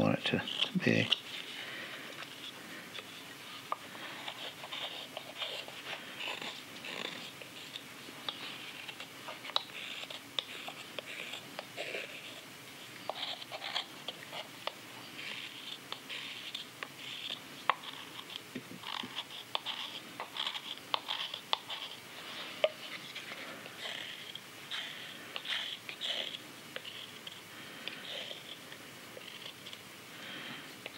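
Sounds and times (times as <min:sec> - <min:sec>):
hook knife scraping wood: 0:00.3 - 0:01.2, 0:13.1 - 0:22.0.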